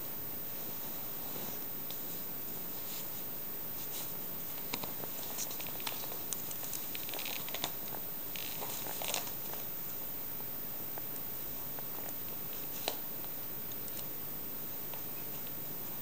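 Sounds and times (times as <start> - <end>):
steady background hiss: 0.0 - 16.0
fabric rustling: 0.5 - 9.7.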